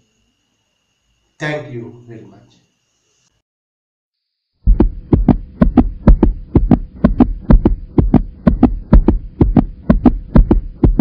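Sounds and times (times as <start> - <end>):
faint steady hum: 0.0 - 3.4
double-thump heartbeat beat: 4.7 - 11.0.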